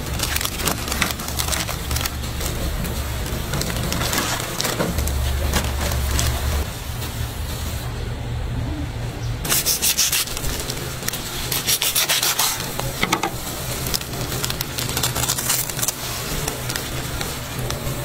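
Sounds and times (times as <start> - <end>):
knife sawing through crispy crust: 9.5 - 12.9.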